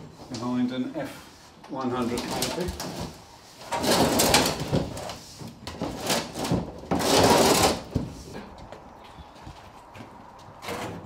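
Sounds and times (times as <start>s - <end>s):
panel scraping and rubbing: 1.2s - 8.4s.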